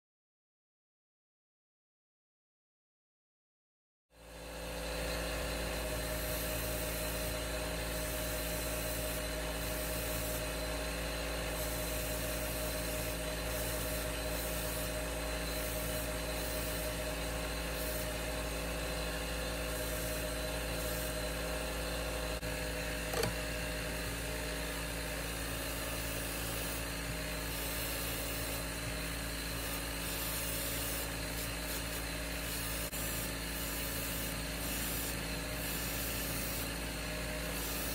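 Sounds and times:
small motor humming: 4.2 - 37.9
airbrush air hiss: 5.6 - 19.0, 19.6 - 21.4, 25.9 - 28.9, 29.5 - 36.8, 37.4 - 37.9
sharp click: 23.1 - 23.4.

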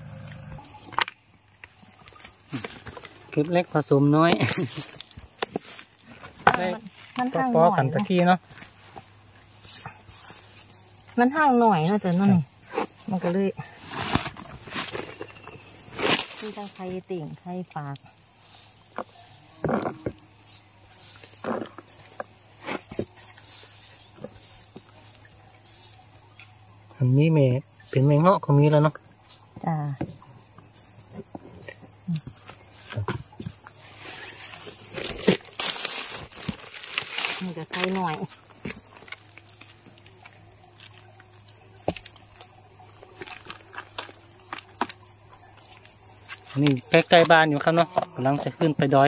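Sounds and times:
insects chirring: 0.0 - 49.0
rustles in plastic pan: 33.7 - 40.3.

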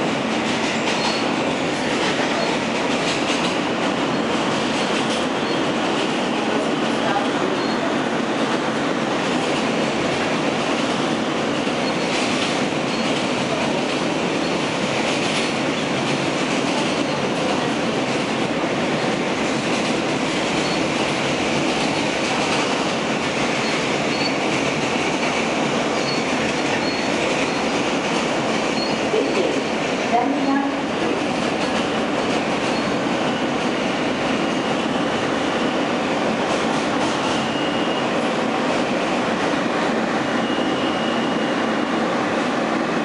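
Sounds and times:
subway wheels rumbling on rail: 0.0 - 43.0.

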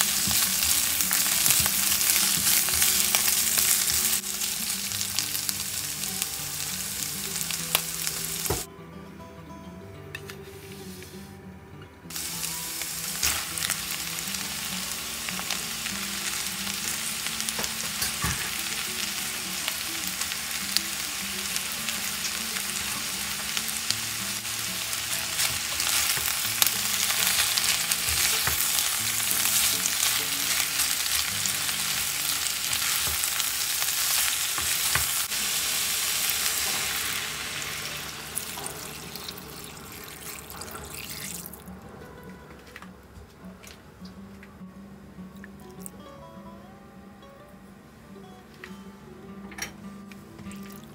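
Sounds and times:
vegetables sizzling in frying pan: 0.0 - 8.7, 12.1 - 41.5.

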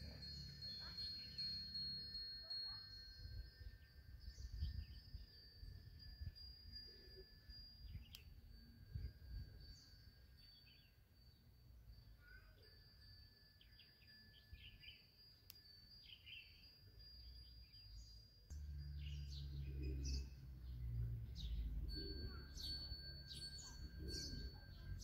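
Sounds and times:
small birds chirping: 0.0 - 25.0
low rumble: 18.5 - 25.0.

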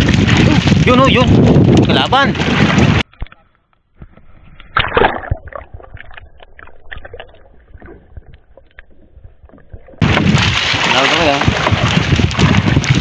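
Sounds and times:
splash: 0.0 - 3.0, 4.7 - 8.2, 9.7 - 13.0
underwater water sloshing: 2.4 - 13.0.

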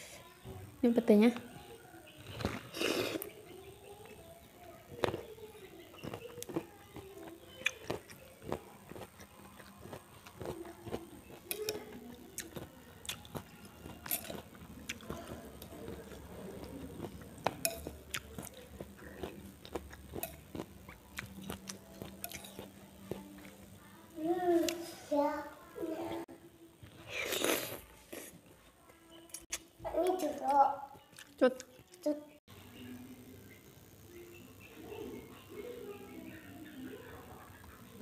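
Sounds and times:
chewing: 1.4 - 3.4, 4.0 - 23.7, 31.0 - 32.1.

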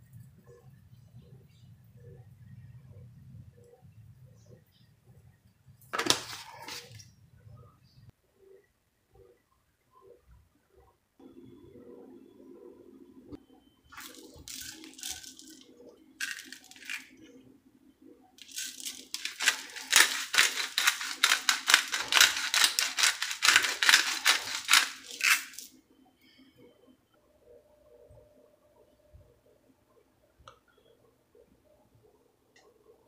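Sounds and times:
seasoning shaker rattling: 14.0 - 17.2, 18.4 - 25.7.

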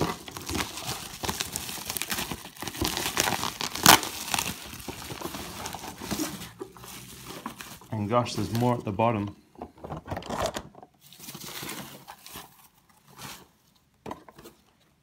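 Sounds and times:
sharp crackle: 0.0 - 4.9
packing material crinkling: 0.0 - 9.3, 10.3 - 13.7.

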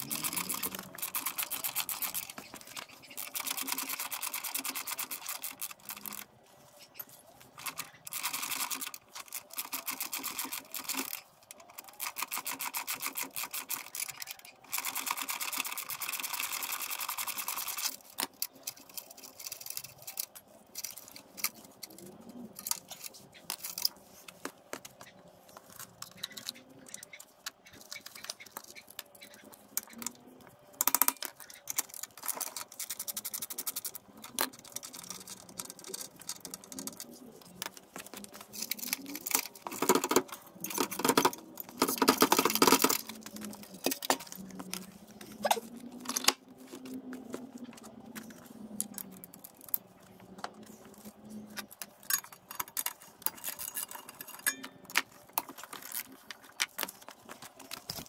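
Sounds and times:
rapid clicks: 0.0 - 6.3, 7.6 - 58.0
hand tools clinking on metal parts: 51.5 - 58.0.

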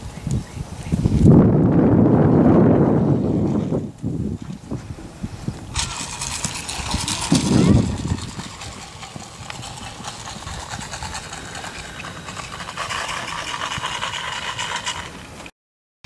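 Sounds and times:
steady outdoor noise: 0.0 - 15.5
horse hoofbeats on sand: 5.7 - 15.1.

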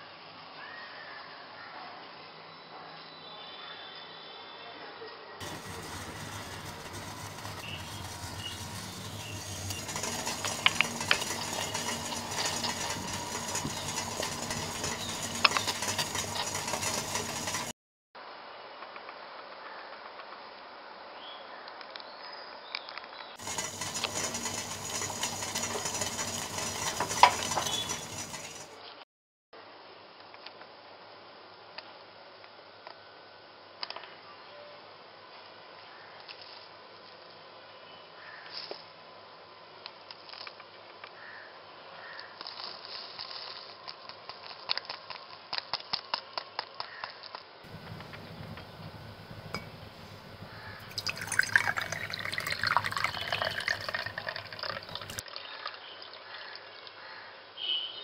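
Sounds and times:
coffee granules pattering into mug: 5.4 - 17.7, 23.4 - 28.7, 47.7 - 55.8
gas stove hissing: 5.4 - 17.7, 23.4 - 28.8, 47.7 - 55.2.

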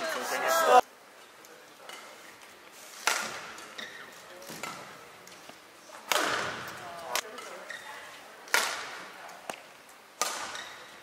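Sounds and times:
rackets hitting shuttlecock: 3.0 - 5.0, 6.0 - 7.7, 8.5 - 9.6, 10.2 - 10.8.

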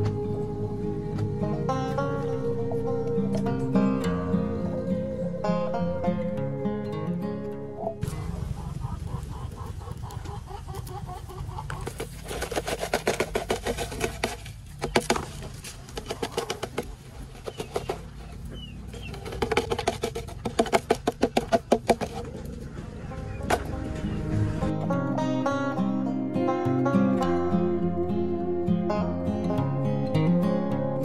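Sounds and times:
chickens clucking: 7.8 - 29.6.

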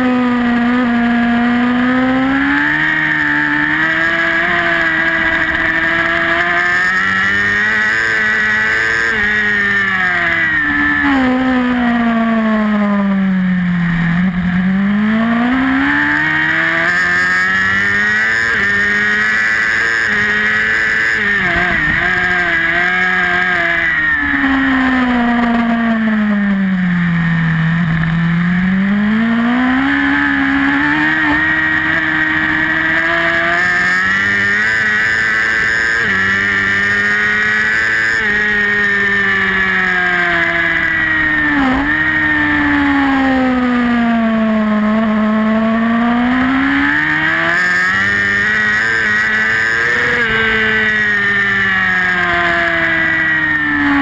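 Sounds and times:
racing motorcycle engine: 0.0 - 54.0.

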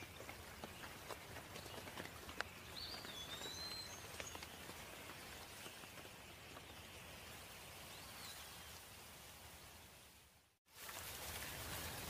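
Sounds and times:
bird whistling: 2.8 - 4.2
rain hiss: 5.4 - 12.0.

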